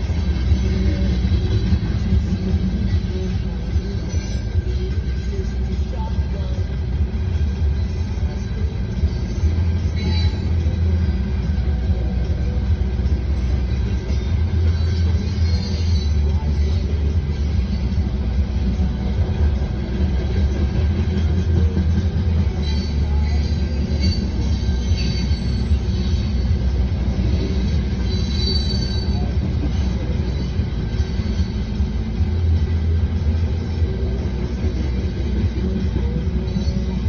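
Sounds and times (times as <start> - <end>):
train wheels rumbling on rails: 0.0 - 37.0
high-pitched wheel squeals: 9.2 - 10.8, 14.1 - 16.8, 22.0 - 26.6, 27.4 - 31.8, 36.4 - 37.0.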